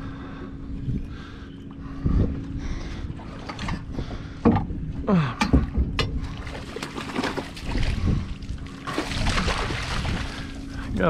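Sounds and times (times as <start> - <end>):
fish thrashing and splashing: 6.2 - 10.8.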